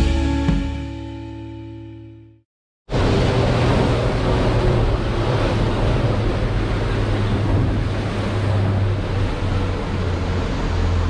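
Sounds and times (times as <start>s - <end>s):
boat engine drone: 2.9s - 11.0s
water rushing: 2.9s - 11.0s
wind buffeting microphone: 3.0s - 10.3s.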